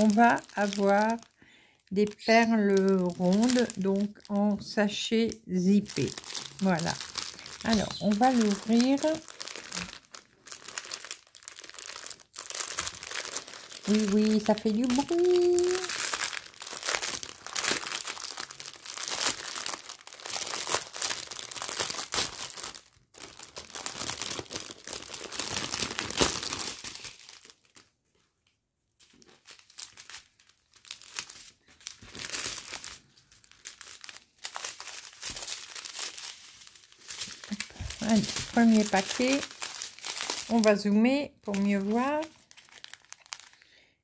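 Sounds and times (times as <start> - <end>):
plastic packaging crinkling: 0.0 - 43.8.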